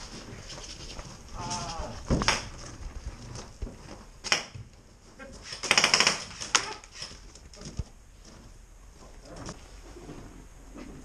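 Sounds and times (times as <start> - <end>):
airsoft gunfire: 4.2 - 4.6, 5.5 - 6.8.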